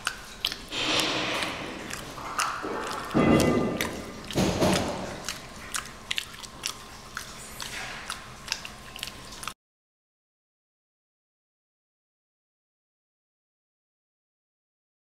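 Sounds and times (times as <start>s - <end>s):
chimpanzee chewing: 0.0s - 9.6s.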